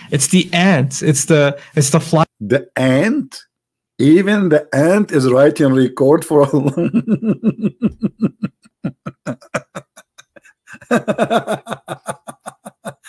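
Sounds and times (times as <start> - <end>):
man laughing hard: 6.6 - 13.0.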